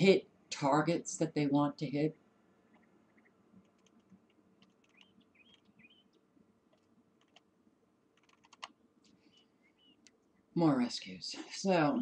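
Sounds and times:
faint bird chirps: 2.7 - 3.4, 4.8 - 6.3, 9.1 - 10.5
faint computer mouse clicks: 2.7 - 5.7.

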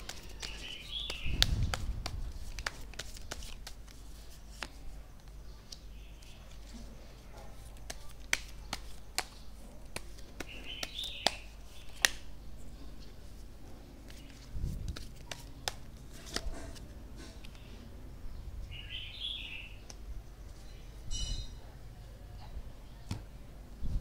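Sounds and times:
card edges clicking: 0.0 - 5.8, 7.7 - 12.2
cards sliding rustle: 0.0 - 6.7, 13.2 - 17.6.

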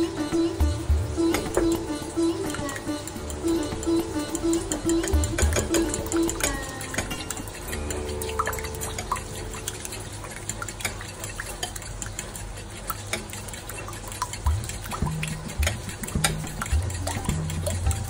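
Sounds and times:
spoon clinking against bowl: 4.0 - 9.8.

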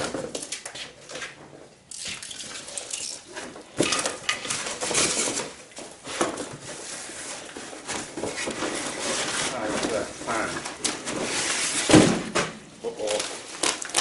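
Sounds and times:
cardboard and foam rustling: 4.4 - 14.0.

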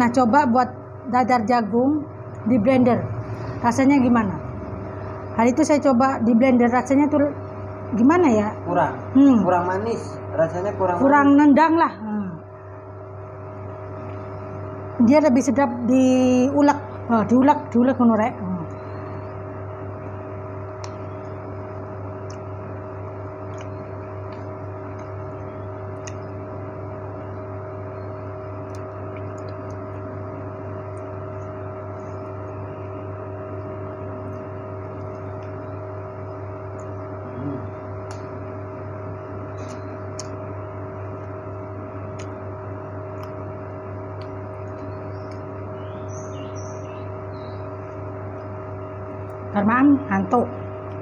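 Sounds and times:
desk fan motor humming: 0.0 - 51.0
small ticks: 20.8 - 22.7, 23.4 - 26.5, 28.5 - 32.8, 34.2 - 37.1, 38.0 - 38.4, 42.0 - 42.4, 43.1 - 43.4, 44.1 - 48.6.

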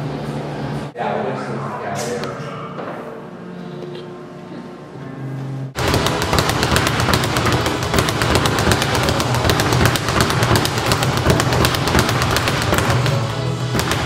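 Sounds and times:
speed bag rattling: 5.8 - 14.0.

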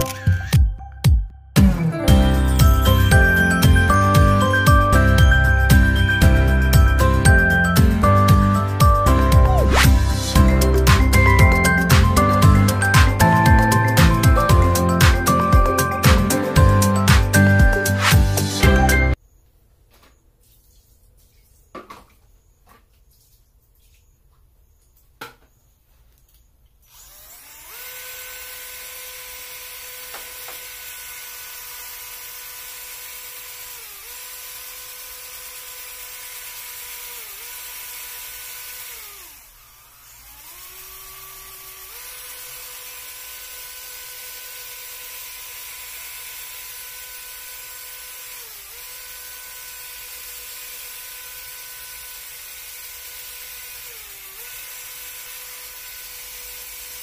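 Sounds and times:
electric drill motor whine: 2.1 - 19.2, 26.8 - 57.0.

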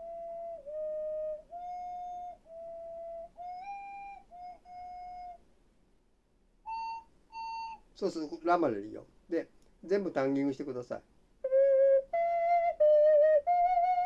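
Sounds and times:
ocarina playing held notes: 0.0 - 5.4, 6.7 - 8.4, 11.4 - 14.0.

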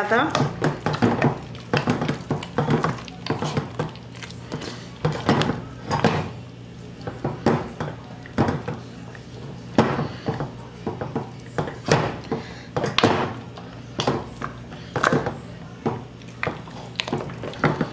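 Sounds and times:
potato mashing squish: 0.0 - 17.9.

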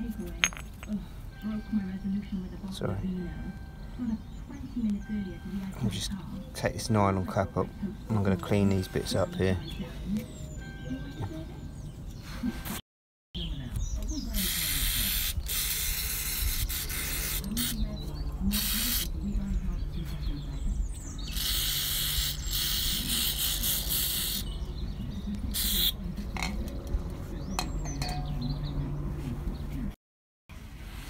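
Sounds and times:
aerosol spray hissing: 18.6 - 19.1, 21.3 - 24.4.

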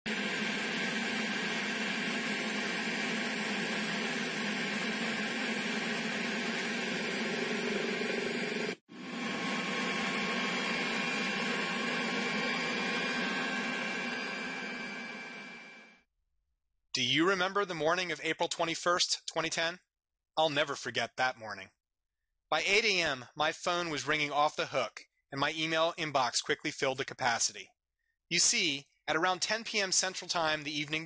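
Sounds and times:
aircraft cabin engine noise: 0.1 - 15.2
faint high whine: 0.2 - 16.0.

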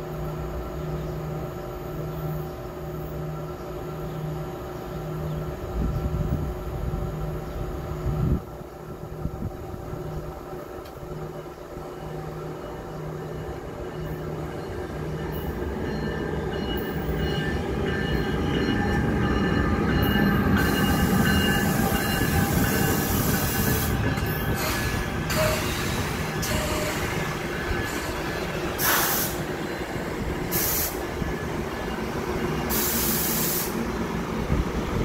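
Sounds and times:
train rumbling past: 0.0 - 35.0
steady high squeal: 8.7 - 34.6.

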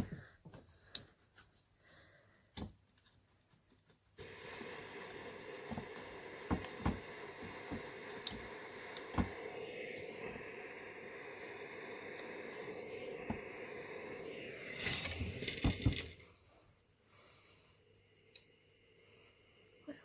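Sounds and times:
steam iron hissing: 4.2 - 19.8
iron tapping: 5.6 - 9.4.

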